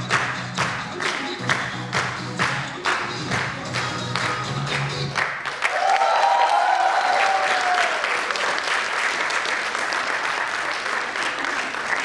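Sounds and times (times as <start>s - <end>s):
music: 0.0s - 5.6s
audience applauding: 5.1s - 12.0s
high-pitched cheer: 5.6s - 8.4s.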